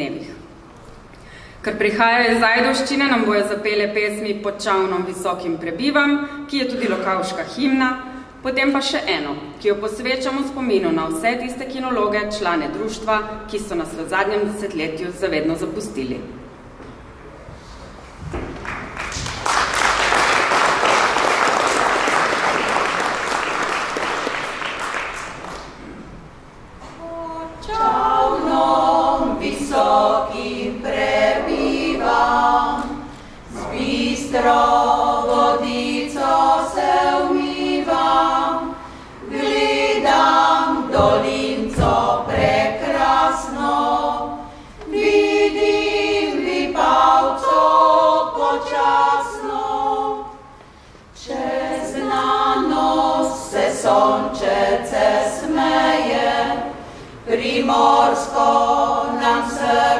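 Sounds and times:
women's choir singing a cappella: 26.9 - 59.9.

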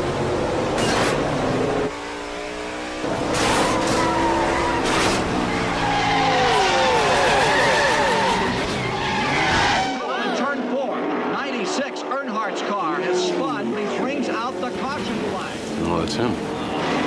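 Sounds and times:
racing car engines: 0.0 - 17.0
tires squealing and skidding: 3.0 - 10.6.

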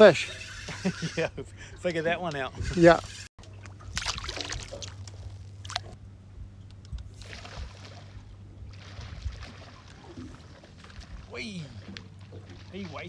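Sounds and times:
water sloshing gently: 0.0 - 13.0
steady low hum: 0.2 - 13.0
fish splashing at water surface: 3.8 - 6.0.

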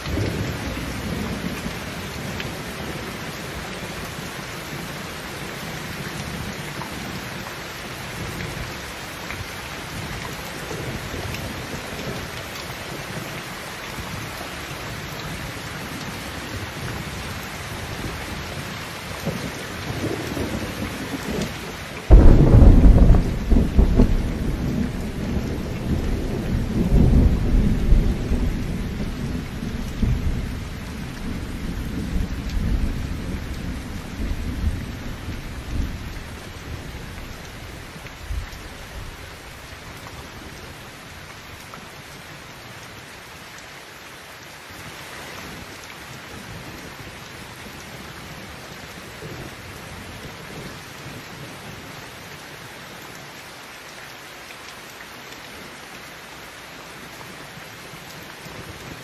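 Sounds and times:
heavy rain falling: 0.0 - 59.0
thunder rumbling: 22.1 - 37.6.

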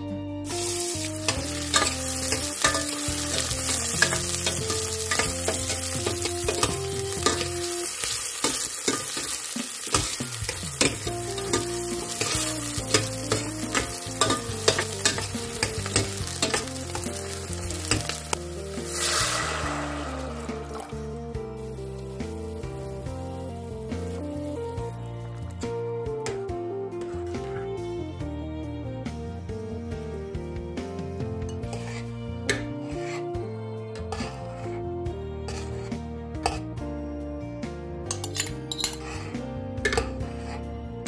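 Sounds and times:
utensils scraping metal pan: 0.5 - 21.0, 31.5 - 33.3, 35.5 - 36.6, 38.1 - 40.6
water hissing in hot pan: 0.5 - 24.9
food sizzling in hot oil: 0.5 - 25.0.

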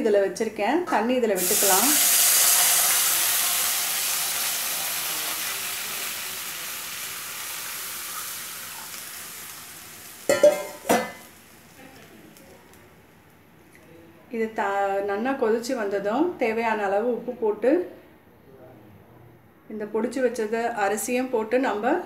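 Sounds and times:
oil sizzling and hissing: 1.4 - 12.9.

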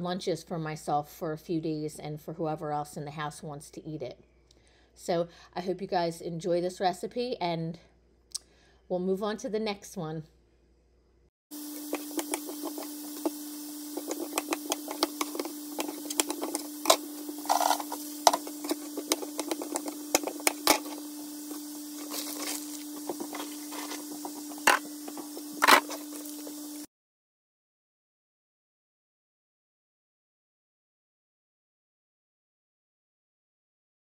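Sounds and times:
steady low hum: 11.6 - 26.9.

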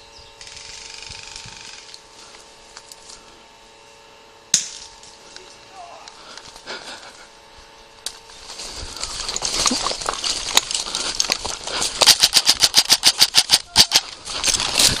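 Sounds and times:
rustling undergrowth: 0.4 - 15.0
airsoft rifle rapid fire: 12.0 - 14.0.

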